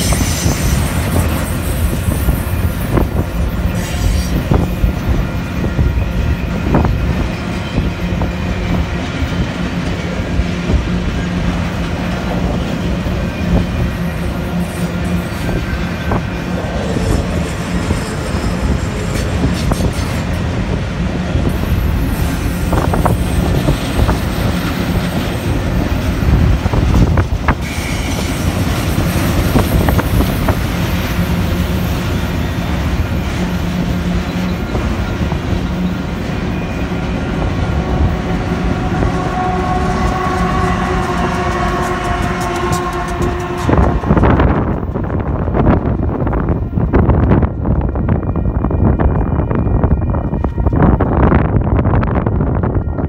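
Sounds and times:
freight train wheels clattering: 0:00.0 - 0:47.2
locomotive horn tones: 0:36.5 - 0:44.8.

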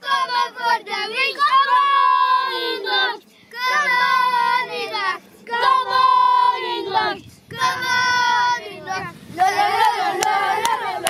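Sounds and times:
children singing a chant: 0:00.0 - 0:11.0.

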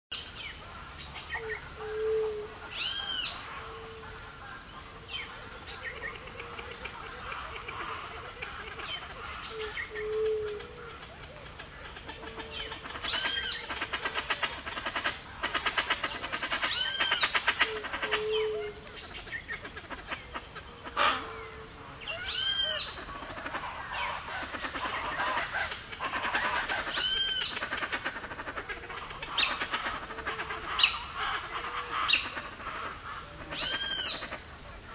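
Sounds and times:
dense animal chorus: 0:10.6 - 0:34.9
loud arching animal call: 0:11.8 - 0:18.8, 0:19.6 - 0:34.9.

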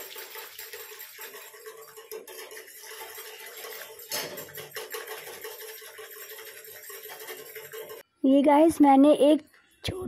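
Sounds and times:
whisk clicking against pan: 0:00.0 - 0:08.0
whisk swishing through milk: 0:00.0 - 0:08.0.

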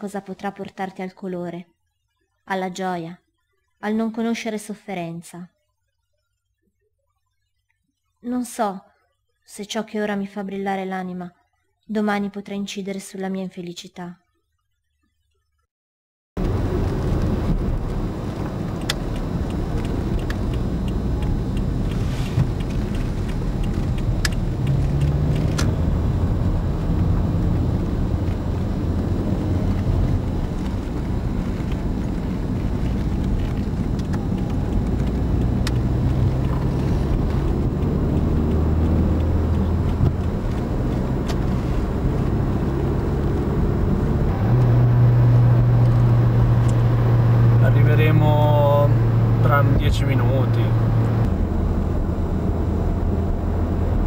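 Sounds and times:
car road and engine drone: 0:16.4 - 0:54.0.

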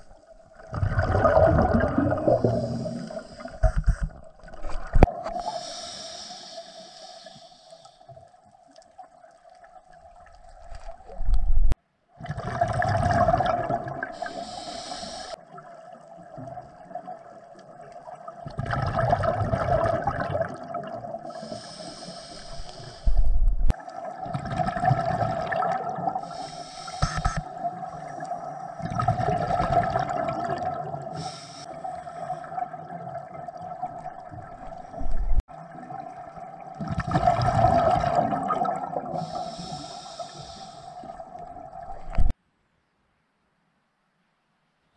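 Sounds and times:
regulator exhalation bubbling: 0:00.7 - 0:03.6
regulator inhalation hiss: 0:02.3 - 0:03.7, 0:05.4 - 0:08.1, 0:14.2 - 0:15.4, 0:21.3 - 0:23.4, 0:26.2 - 0:27.5, 0:31.1 - 0:32.5, 0:39.1 - 0:41.2.

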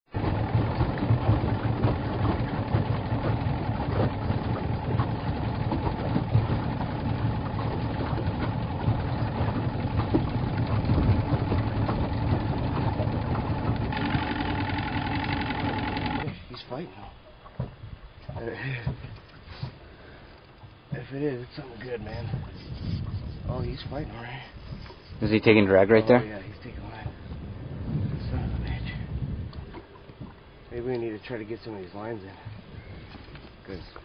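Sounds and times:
outboard motor running: 0:00.1 - 0:34.0.

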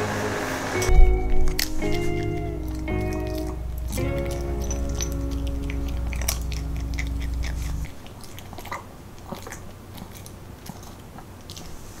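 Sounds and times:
background music: 0:00.0 - 0:07.9
dog crunching dry kibble: 0:00.9 - 0:12.0.

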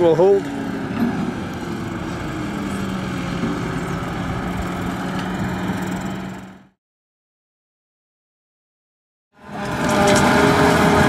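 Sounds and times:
forage harvester chopping grass: 0:00.0 - 0:06.6
tractor engine drone: 0:00.0 - 0:06.8, 0:09.4 - 0:11.0.

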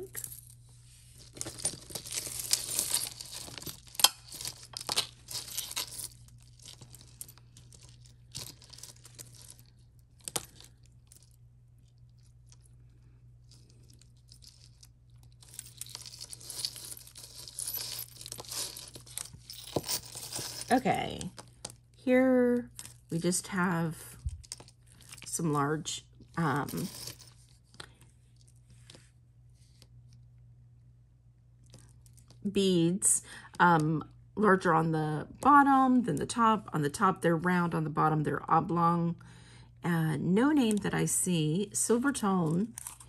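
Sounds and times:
jewelry packaging rustling: 0:00.0 - 0:21.9, 0:24.1 - 0:29.0, 0:42.4 - 0:43.0.

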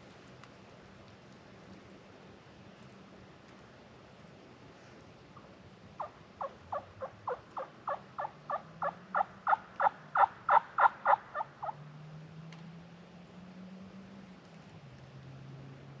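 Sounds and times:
turkey yelping: 0:06.0 - 0:11.8.

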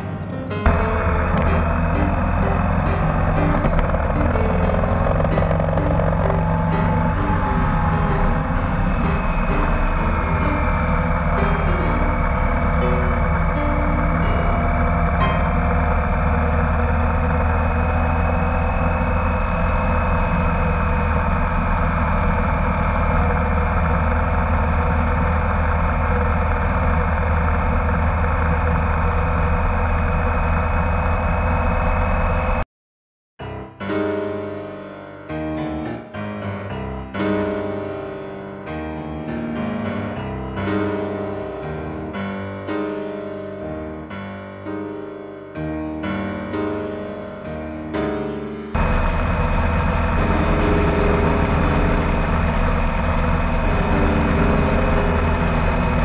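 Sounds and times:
piano music: 0:00.0 - 0:32.6, 0:33.4 - 0:56.0
motorcycle engine cruising: 0:00.6 - 0:32.6, 0:48.8 - 0:56.0.

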